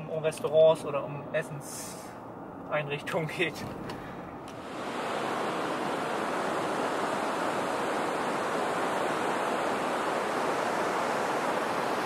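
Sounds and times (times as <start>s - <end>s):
waves breaking: 4.4s - 12.0s.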